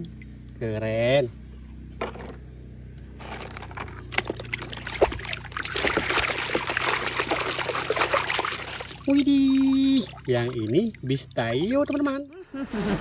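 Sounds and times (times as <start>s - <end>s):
water sloshing and splashing: 3.2s - 12.4s
hand scrubbing toy in water: 4.2s - 12.4s.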